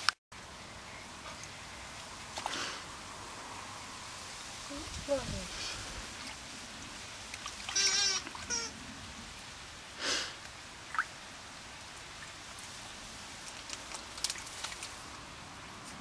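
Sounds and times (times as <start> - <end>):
puppies splashing water: 5.5 - 8.7.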